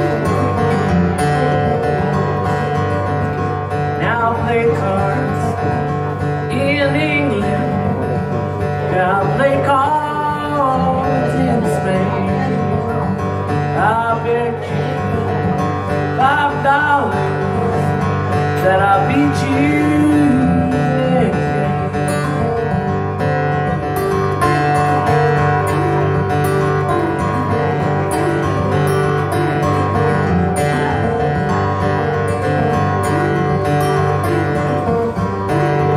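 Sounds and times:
man singing: 0.0 - 23.3, 24.7 - 35.9
acoustic guitar fingerpicked: 0.0 - 35.9.

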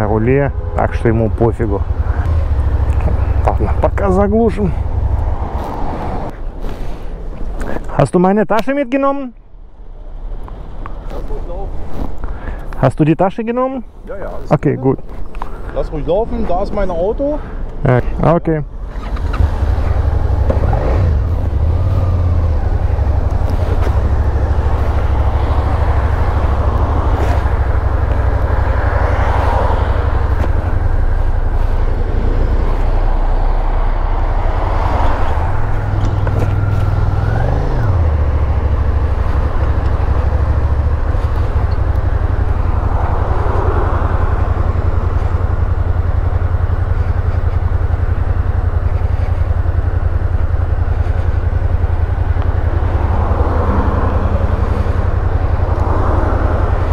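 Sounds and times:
motorcycle engine revving: 0.0 - 6.8, 18.6 - 56.9.

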